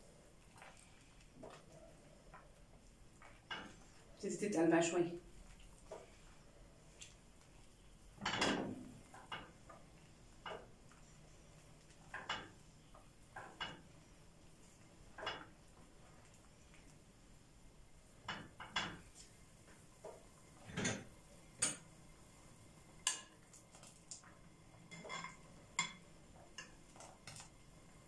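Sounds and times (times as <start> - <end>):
utensils clinking against pot and dishes: 3.4 - 4.0, 8.2 - 9.5, 20.6 - 21.9, 24.9 - 26.0.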